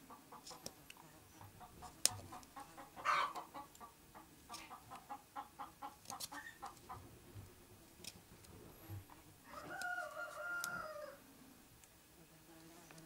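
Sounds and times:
chickens clucking: 0.0 - 7.2
chicken squawk: 3.0 - 3.6.

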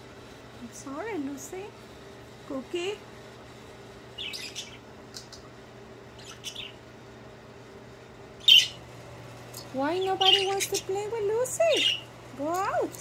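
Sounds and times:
budgerigar chirping: 4.2 - 4.8, 6.2 - 6.8, 8.4 - 8.8, 10.0 - 10.8, 11.7 - 12.0.

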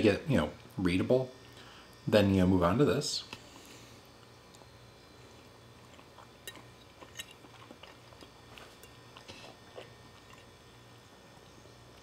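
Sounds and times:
wet chewing: 5.4 - 10.8.

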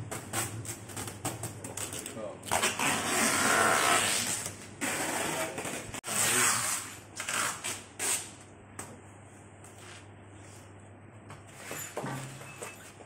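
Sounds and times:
cardboard scraping against sheet metal: 2.5 - 8.3.

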